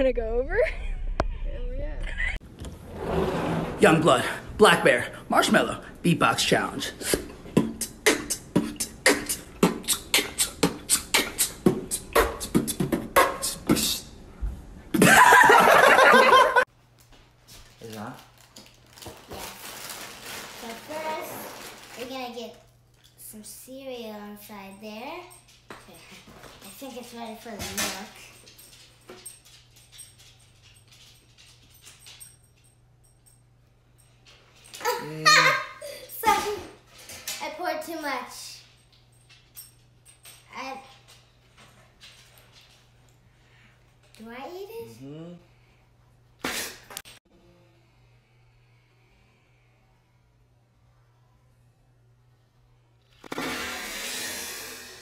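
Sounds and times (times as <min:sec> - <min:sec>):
beatboxing kick and snare: 0:07.0 - 0:14.1
short vocal sounds: 0:07.0 - 0:14.1.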